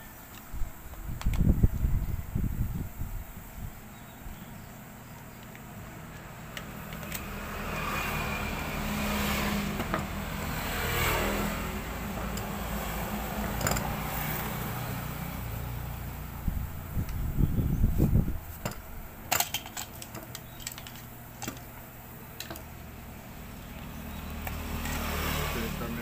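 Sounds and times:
vehicle passing by: 0:06.7 - 0:18.2, 0:23.0 - 0:26.0
plastic housing clicking apart: 0:18.6 - 0:21.7.

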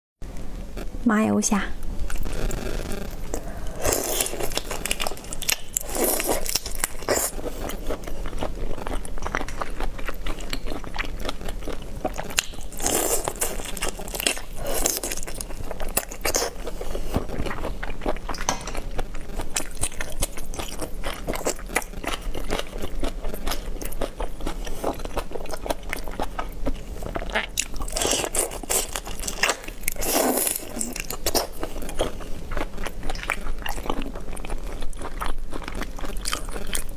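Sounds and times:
wet chewing: 0:02.0 - 0:36.9
prawn shells crunching: 0:03.2 - 0:08.0.

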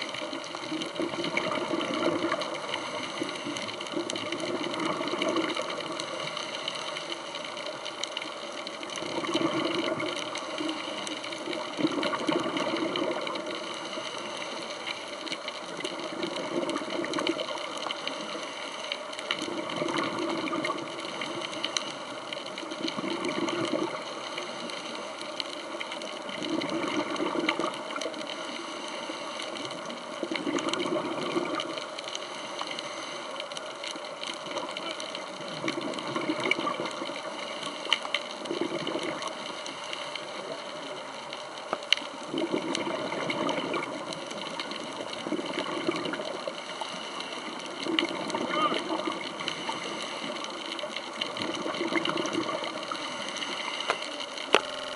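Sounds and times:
diver exhaling bubbles: 0:00.6 - 0:06.2, 0:09.0 - 0:10.6, 0:11.4 - 0:13.7, 0:19.4 - 0:21.6, 0:22.8 - 0:24.2, 0:26.4 - 0:28.1, 0:30.2 - 0:31.8, 0:35.5 - 0:37.2, 0:38.3 - 0:39.4, 0:42.2 - 0:44.1, 0:44.8 - 0:46.6, 0:47.7 - 0:50.6, 0:51.2 - 0:54.9
regulator hiss: 0:13.2 - 0:19.8, 0:31.5 - 0:33.8, 0:44.1 - 0:54.9.

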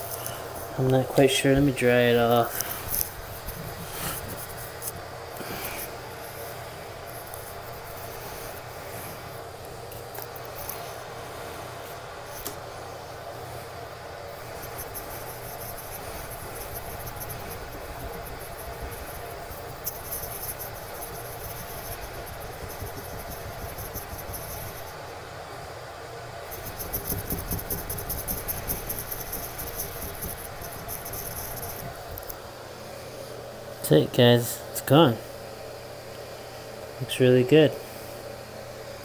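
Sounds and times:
cloth rubbing on bathtub: 0:02.4 - 0:04.9.

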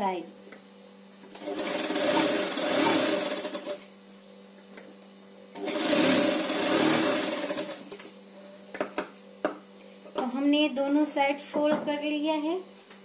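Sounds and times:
steady motor hum: 0:00.0 - 0:13.0
sewing machine stitching: 0:01.4 - 0:03.8, 0:05.6 - 0:07.9.

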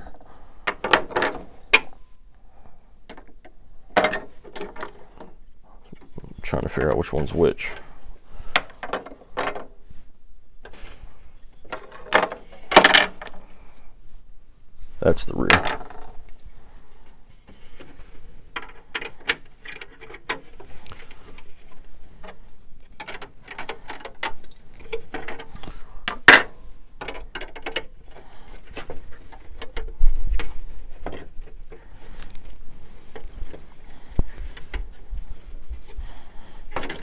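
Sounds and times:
plastic parts clicking and tapping: 0:03.1 - 0:06.1, 0:17.8 - 0:21.5, 0:22.2 - 0:32.4, 0:36.7 - 0:37.0.

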